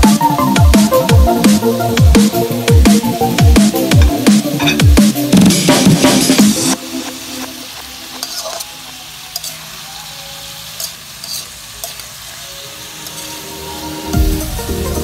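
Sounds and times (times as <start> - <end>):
music with a heavy beat: 0.0 - 8.2, 13.8 - 15.0
vegetables sizzling in a wok: 0.0 - 15.0
metal spatula scraping a pan: 4.5 - 4.9, 8.1 - 13.7.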